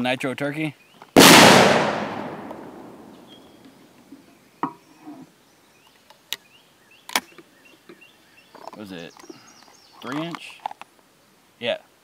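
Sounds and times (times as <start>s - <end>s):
shotgun blast echo: 1.2s - 3.6s
shotgun action metallic clicks: 1.7s - 3.8s
faint bird chirps: 3.1s - 10.1s.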